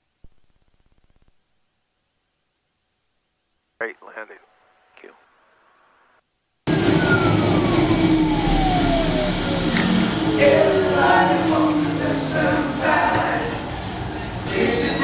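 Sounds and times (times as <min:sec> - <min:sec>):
turboprop engine and propeller noise: 0:06.7 - 0:10.9.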